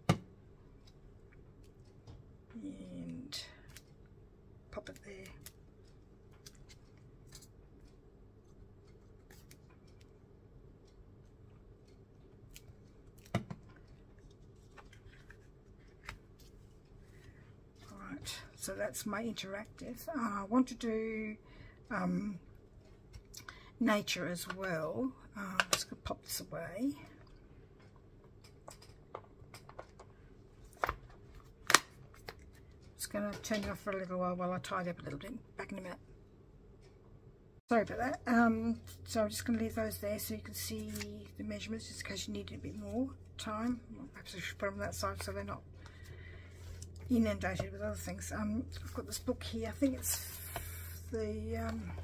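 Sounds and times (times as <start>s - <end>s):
plastic sheets clicking and tapping: 8.8s - 10.1s, 28.4s - 30.1s.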